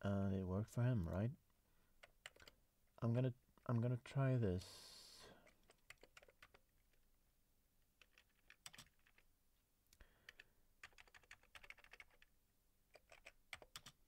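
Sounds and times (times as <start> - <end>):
faint keyboard keystrokes: 2.0 - 2.6, 10.2 - 12.3, 12.9 - 14.0.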